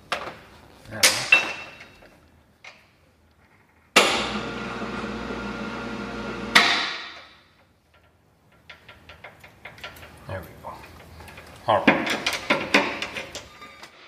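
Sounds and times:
electric lift motor running: 4.1 - 6.6.

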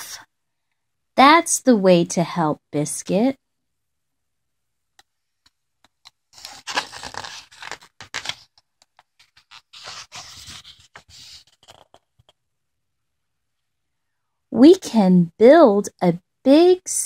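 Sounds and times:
paper pages rustling: 5.9 - 12.4.

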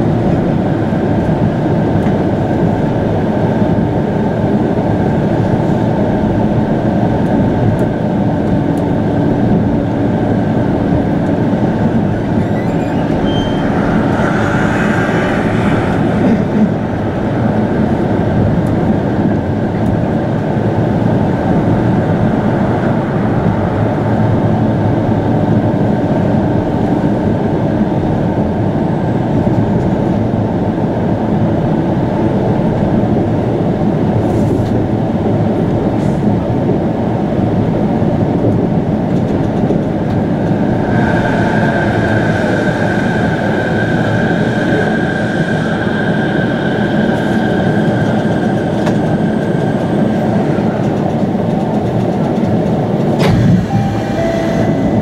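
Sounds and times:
monorail rumble: 0.0 - 55.0
higher-pitched whine: 11.0 - 19.6, 40.6 - 51.0, 53.2 - 55.0.

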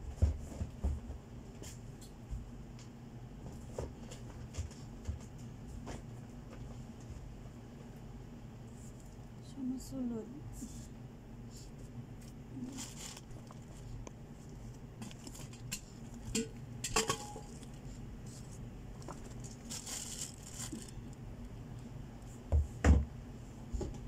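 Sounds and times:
plastic crinkling: 12.2 - 16.4, 17.3 - 21.2.

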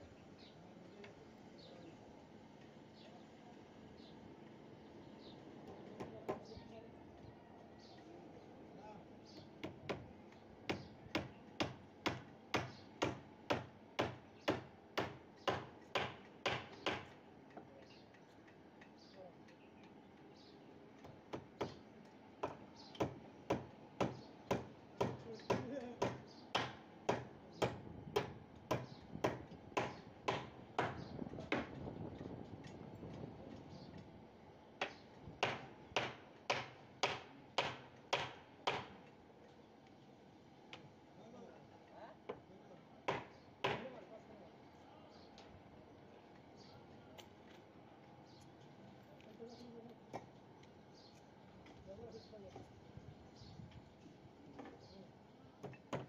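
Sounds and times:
hammer strikes: 10.7 - 17.2, 22.4 - 31.8, 34.8 - 39.0, 43.1 - 43.9.

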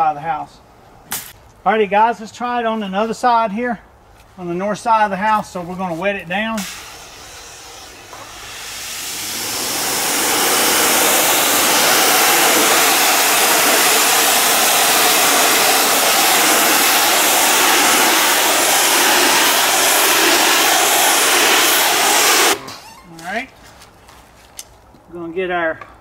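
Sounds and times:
pressure washer spraying water: 6.6 - 22.7.

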